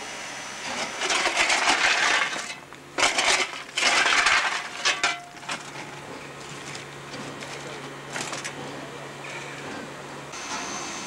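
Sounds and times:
shovel digging into coal: 0:00.8 - 0:06.7.

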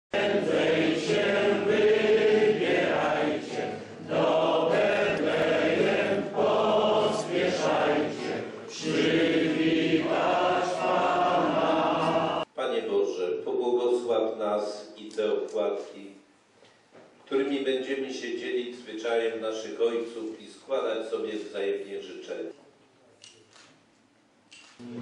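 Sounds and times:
people singing in unison: 0:00.1 - 0:12.5.

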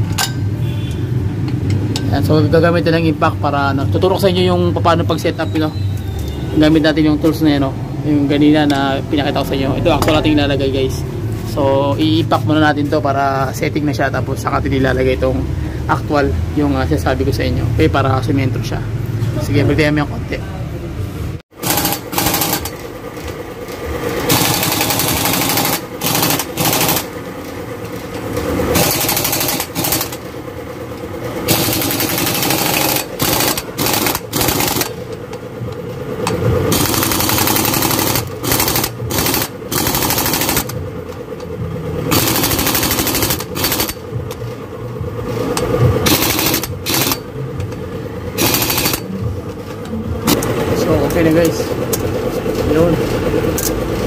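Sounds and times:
impact wrench hammering: 0:21.5 - 0:22.8, 0:24.2 - 0:27.2, 0:27.8 - 0:30.3, 0:31.4 - 0:35.4, 0:36.2 - 0:41.2, 0:42.1 - 0:44.5, 0:45.5 - 0:47.8, 0:48.4 - 0:50.6.

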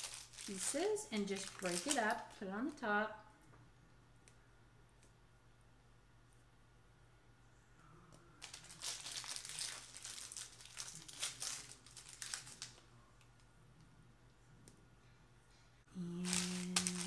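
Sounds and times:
candy wrappers crinkling: 0:00.0 - 0:02.8, 0:08.4 - 0:13.4, 0:16.0 - 0:17.0.

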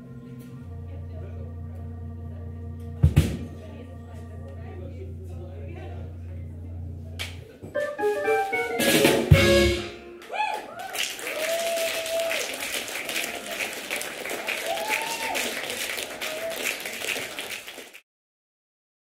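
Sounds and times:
jazz quartet final chord: 0:00.0 - 0:10.3
drum and cymbal hit: 0:07.9 - 0:10.0
audience applause: 0:10.1 - 0:18.0
whooping cheers: 0:10.2 - 0:13.4, 0:14.4 - 0:17.0.

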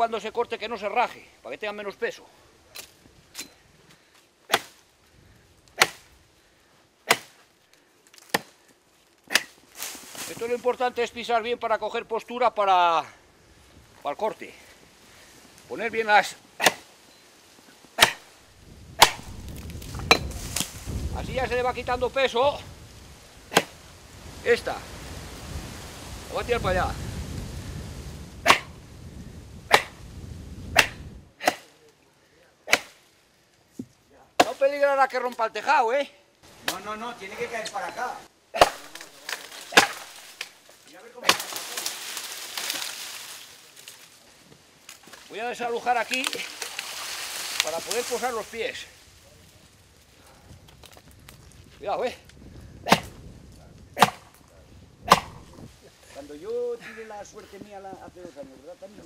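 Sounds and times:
axe chopping wood: 0:04.5 - 0:04.8, 0:05.7 - 0:06.1, 0:07.1 - 0:07.4, 0:08.2 - 0:08.6, 0:09.3 - 0:09.6, 0:16.6 - 0:16.9, 0:18.0 - 0:18.3, 0:19.0 - 0:20.7, 0:23.5 - 0:23.8, 0:28.4 - 0:28.7, 0:29.7 - 0:30.0, 0:30.8 - 0:31.7, 0:32.7 - 0:33.0, 0:34.4 - 0:34.7, 0:38.6 - 0:40.5, 0:41.2 - 0:41.7, 0:52.9 - 0:53.1, 0:54.0 - 0:54.3, 0:55.1 - 0:55.4.

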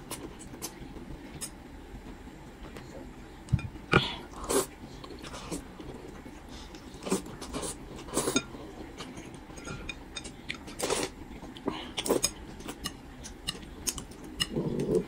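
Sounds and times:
chewing: 0:06.7 - 0:15.0.

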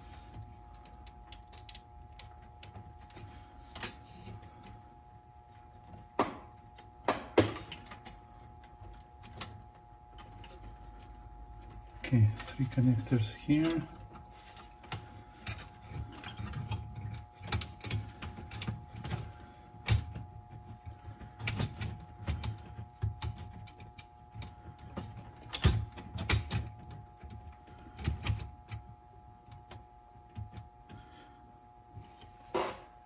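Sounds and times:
clicks and knocks of parts: 0:05.8 - 0:11.8, 0:13.6 - 0:31.0.

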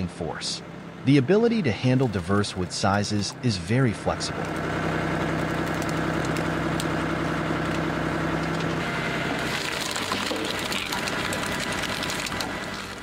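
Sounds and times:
log splitter motor humming: 0:00.0 - 0:13.0
wood crackling and splitting: 0:04.1 - 0:13.0.

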